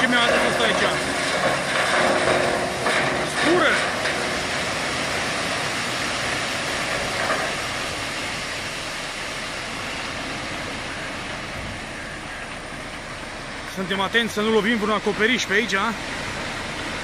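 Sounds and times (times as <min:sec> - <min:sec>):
truck engine running: 0:00.0 - 0:17.0
slag pouring rushing hiss: 0:00.1 - 0:12.0.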